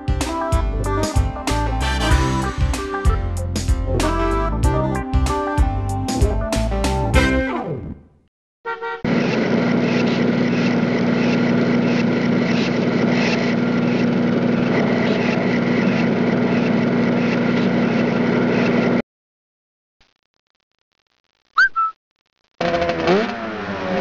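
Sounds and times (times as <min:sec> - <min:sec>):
mechanical hum with whine: 0:09.1 - 0:19.0.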